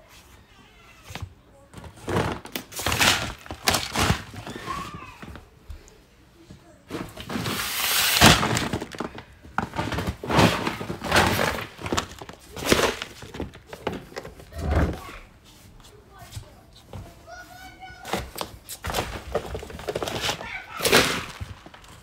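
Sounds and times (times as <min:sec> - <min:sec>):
plastic sacks crinkling: 0:01.8 - 0:05.4, 0:06.9 - 0:15.1, 0:18.8 - 0:22.0.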